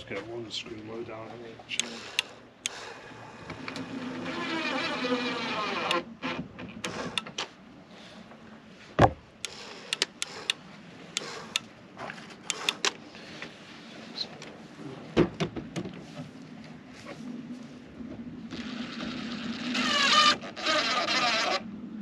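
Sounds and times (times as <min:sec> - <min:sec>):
heavy thumps: 0:09.0 - 0:09.2
tools and timber clicking: 0:09.0 - 0:10.6, 0:12.4 - 0:13.0.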